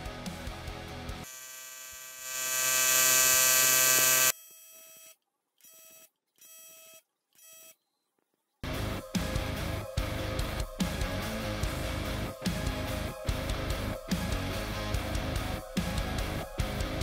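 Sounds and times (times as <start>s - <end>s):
welder arc buzzing: 1.2s - 4.4s.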